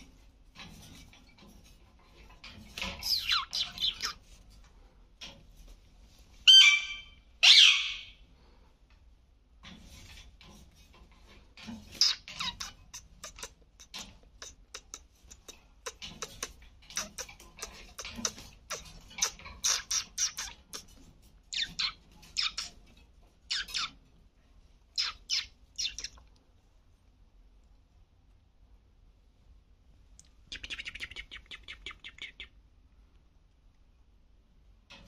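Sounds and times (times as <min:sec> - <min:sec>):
parrots squawking and chirping: 0:02.7 - 0:04.3, 0:06.4 - 0:08.2, 0:11.8 - 0:22.9, 0:23.5 - 0:24.0, 0:25.0 - 0:26.2.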